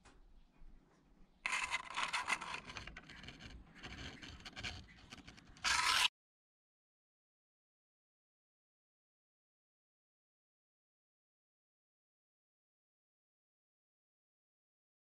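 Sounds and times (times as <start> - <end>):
scraping and rustling: 1.5 - 6.1.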